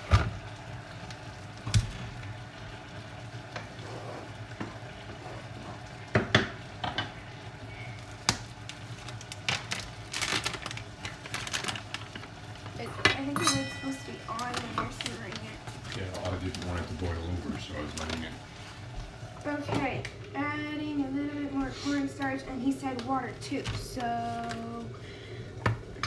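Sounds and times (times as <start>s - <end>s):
sauce simmering in a pan: 0.0s - 26.0s
steady low hum: 0.0s - 26.0s
wooden spoon scraping a pan: 3.6s - 5.8s.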